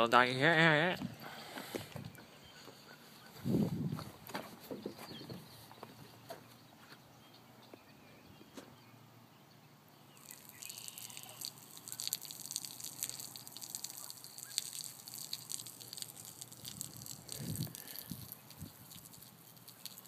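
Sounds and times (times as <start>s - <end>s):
liquid stream splashing on gravel: 10.2s - 20.0s.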